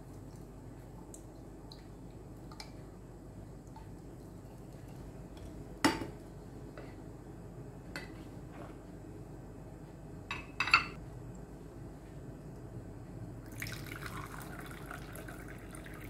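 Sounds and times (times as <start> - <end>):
dishes and utensils clinking: 10.3 - 11.0.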